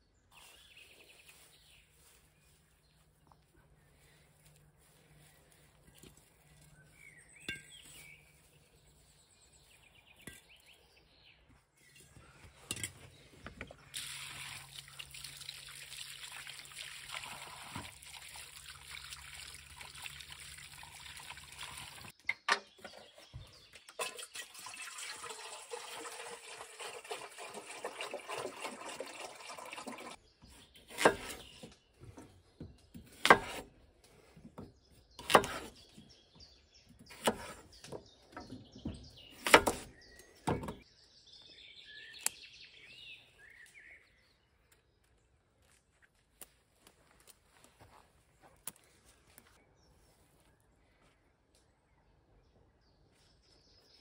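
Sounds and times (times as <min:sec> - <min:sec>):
tap water running onto potatoes: 0:13.9 - 0:22.1, 0:24.0 - 0:30.2
knife cutting on wooden board: 0:33.1 - 0:33.7, 0:37.1 - 0:37.7.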